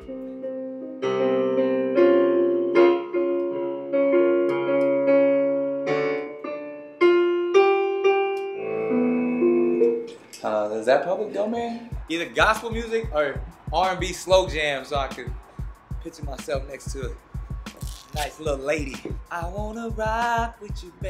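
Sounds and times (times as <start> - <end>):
piano chords: 0.0 - 10.3.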